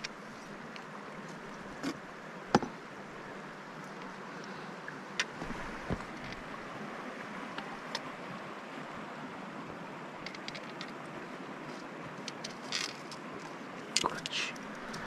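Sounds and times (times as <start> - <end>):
stream water flowing: 0.0 - 15.0
fishing line clicking on rocks: 10.2 - 11.0, 12.2 - 15.0.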